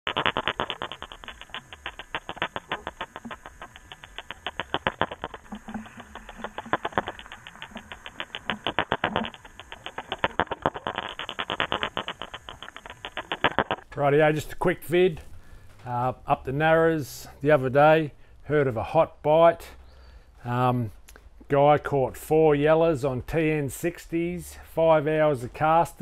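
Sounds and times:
lures clicking underwater: 0.1 - 13.9.

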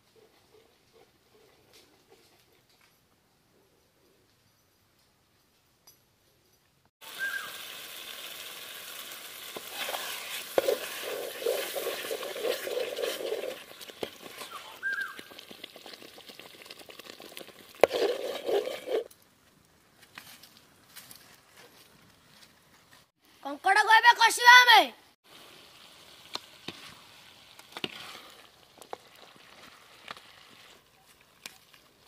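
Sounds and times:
gravy sizzling in a pan: 7.0 - 19.0, 25.2 - 30.7
metal spatula scraping: 9.6 - 14.6, 17.8 - 19.1.

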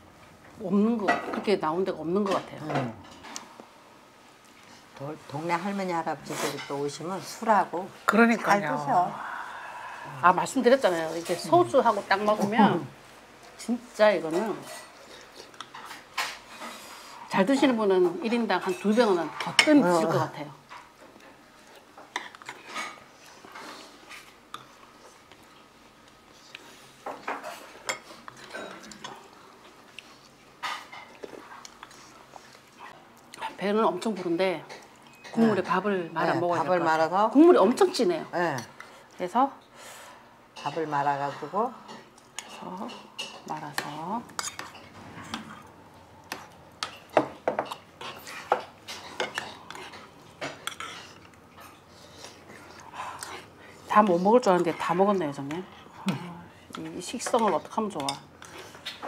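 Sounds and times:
metal spoons clinking on bowls: 57.1 - 58.3.

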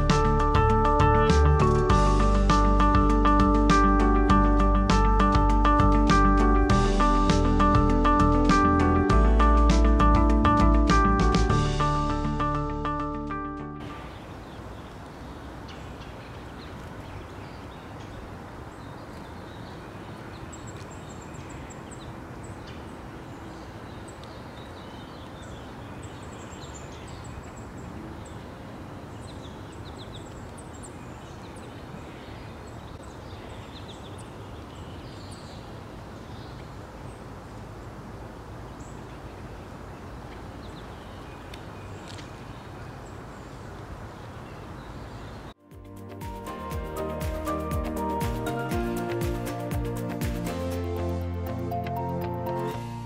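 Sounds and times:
songbirds chipping and calling: 13.8 - 45.6
outdoor background noise: 13.8 - 45.7.

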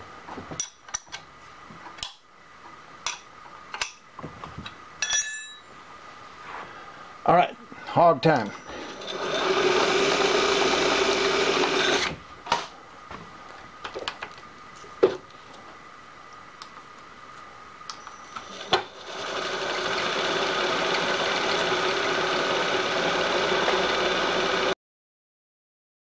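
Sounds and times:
milling machine spindle whine: 8.6 - 12.1, 18.0 - 24.7.

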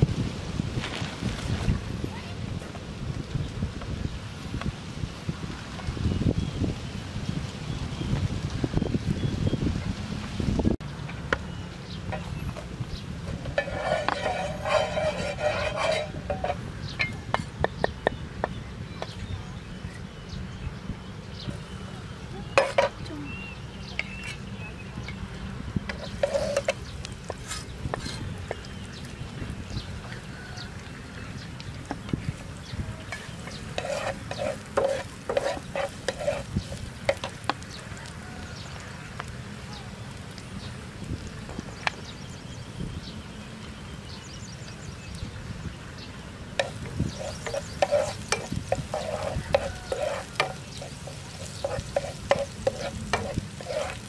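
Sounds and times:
garlic frying: 0.0 - 20.3, 21.1 - 54.0
wind rumble on microphone: 0.0 - 54.0
spatula scraping pan: 12.1 - 17.9, 22.5 - 23.0, 25.8 - 28.9, 31.9 - 37.7, 46.6 - 54.0
cooking utensils clinking: 13.3 - 17.6, 22.5 - 23.0, 25.9 - 28.8, 33.0 - 37.6, 46.6 - 54.0
spatula tapping pan: 33.1 - 37.6, 46.6 - 54.0.

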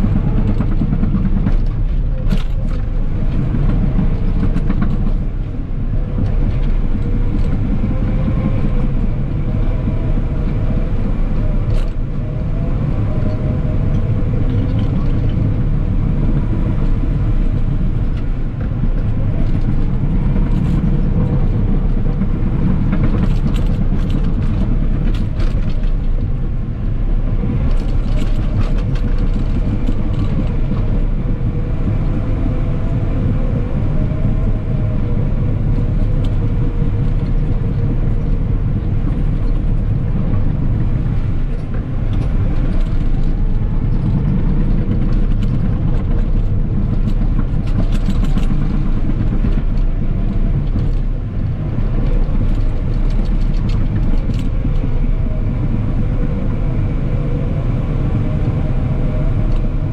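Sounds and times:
machine clanks and rattles: 0.0 - 5.5, 18.0 - 26.4, 37.0 - 54.9
diesel engine running under load: 0.0 - 59.9.

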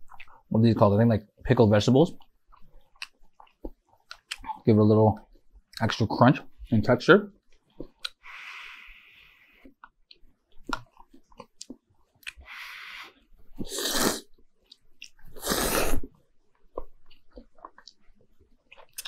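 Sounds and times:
wet chewing smacks: 2.2 - 4.5
person slurping noodles: 12.4 - 14.3, 15.3 - 16.1.

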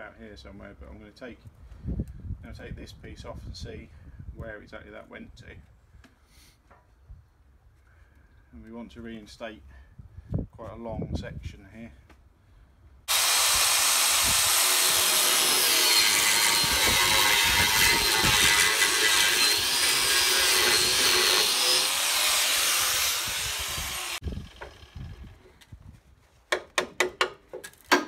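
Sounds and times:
angle grinder cutting steel: 13.1 - 25.0.

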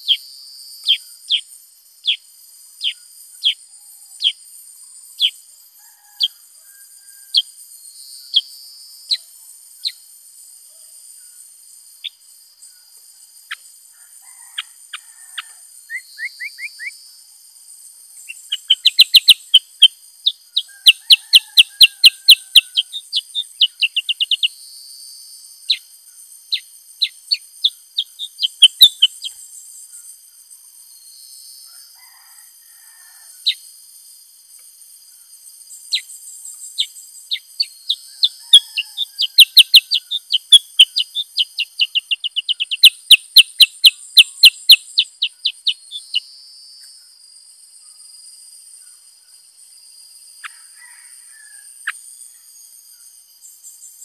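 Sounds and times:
bird rapid chipping song: 18.2 - 24.6, 26.5 - 29.4, 35.9 - 46.3
bird whistled notes: 18.5 - 19.7, 37.6 - 46.3.

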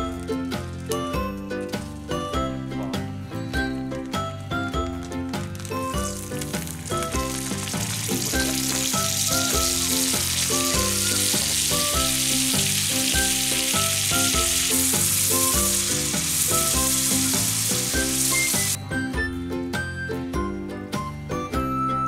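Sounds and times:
food sizzling in hot oil: 5.1 - 18.8.

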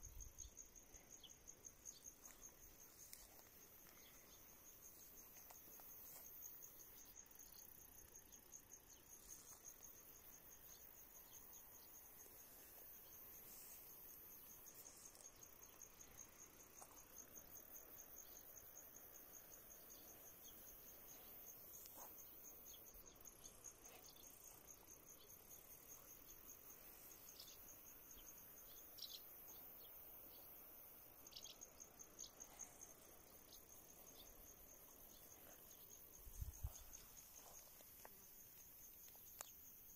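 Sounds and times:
crickets trilling: 0.0 - 39.9
soft ticks: 37.9 - 39.6.

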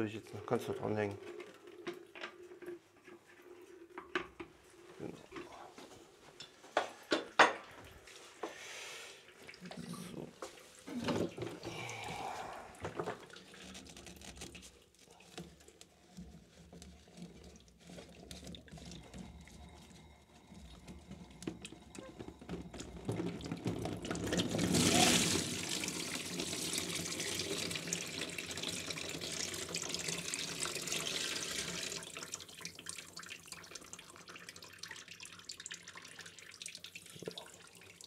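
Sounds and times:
water rushing from a tap: 16.1 - 38.0.

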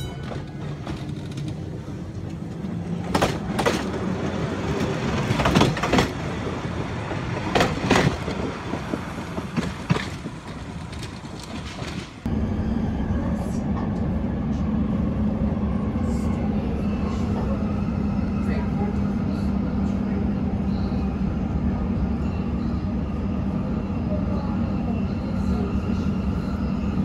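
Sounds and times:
rail vehicle rumbling: 0.0 - 27.0
wheels clacking over rail joints: 0.2 - 12.3.

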